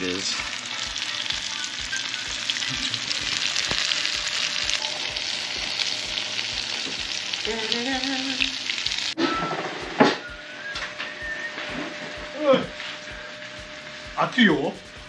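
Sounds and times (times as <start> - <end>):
food sizzling in hot oil: 0.0 - 9.9.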